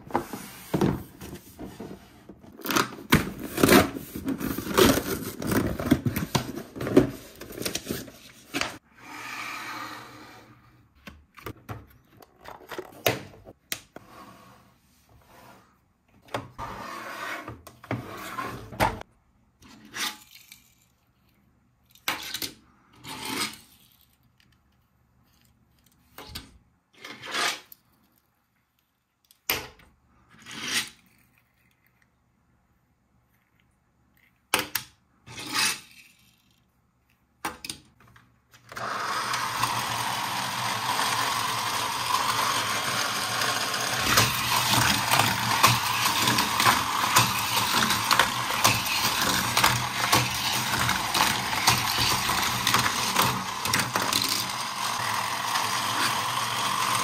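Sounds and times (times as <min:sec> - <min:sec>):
plastic parts clicking and knocking: 0:11.0 - 0:14.0, 0:43.9 - 0:55.0.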